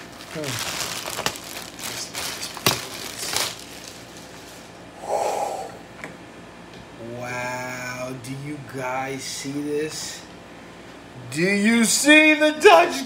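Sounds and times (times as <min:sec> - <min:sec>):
plastic wrapping crinkling: 0:00.0 - 0:04.8.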